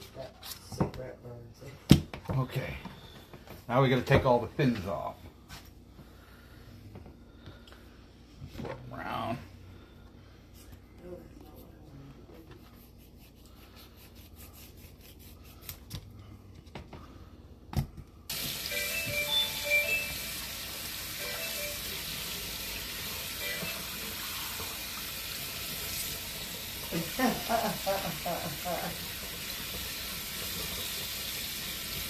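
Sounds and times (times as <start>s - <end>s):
water running into steel sink: 18.3s - 32.0s.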